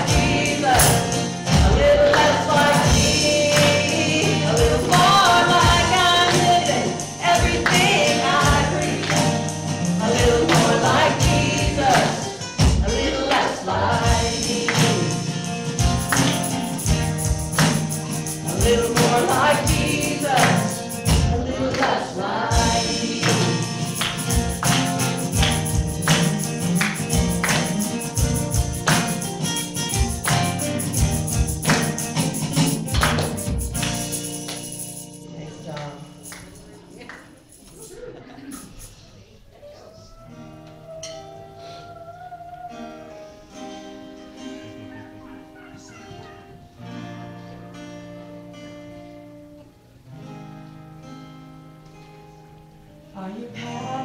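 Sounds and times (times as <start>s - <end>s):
steady percussion beat: 0.0s - 39.1s
gospel singing: 0.0s - 47.6s, 53.1s - 54.0s.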